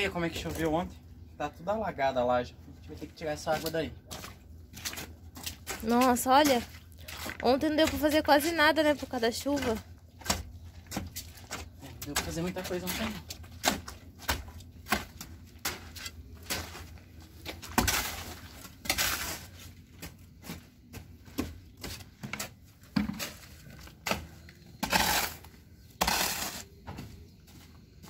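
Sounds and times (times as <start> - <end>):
hoe scraping mortar on concrete: 17.6 - 19.8, 21.8 - 26.8.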